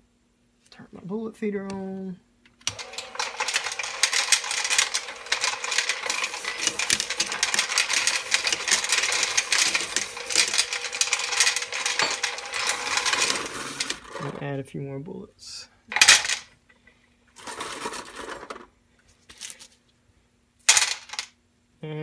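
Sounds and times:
motor hum: 0:02.6 - 0:14.4
bullets clattering in hopper: 0:02.8 - 0:14.3, 0:15.9 - 0:16.5, 0:20.7 - 0:21.3.

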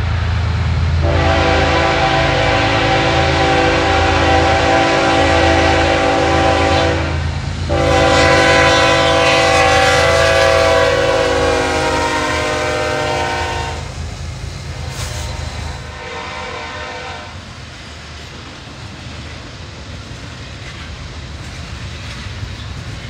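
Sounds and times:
low rumble of passing train: 0:00.0 - 0:23.0
locomotive air horn blasts: 0:01.0 - 0:13.9, 0:14.8 - 0:17.4.

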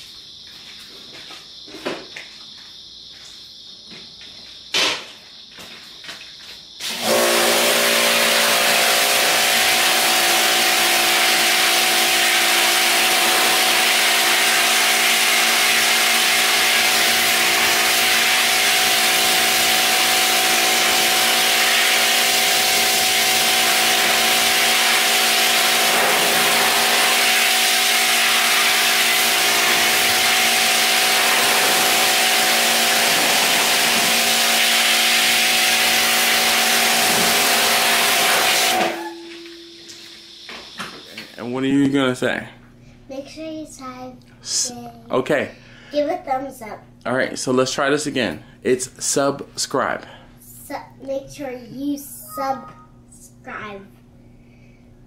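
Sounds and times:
water jet hissing on metal: 0:06.8 - 0:41.4
pressure washer motor hum: 0:06.8 - 0:41.6.

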